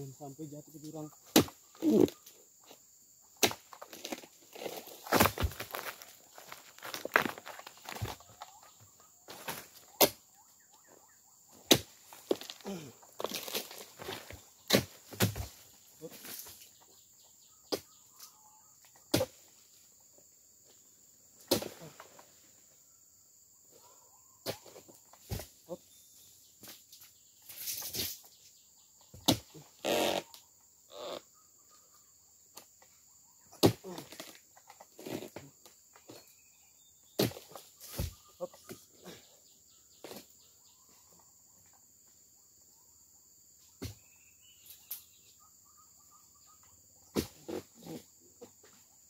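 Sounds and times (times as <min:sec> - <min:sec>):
high insect drone: 0:00.0 - 0:49.0.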